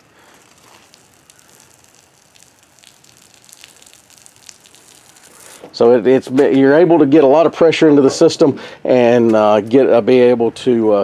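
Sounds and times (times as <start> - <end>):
water drops ticking: 0.0 - 5.5
hissing water spray: 0.0 - 5.8.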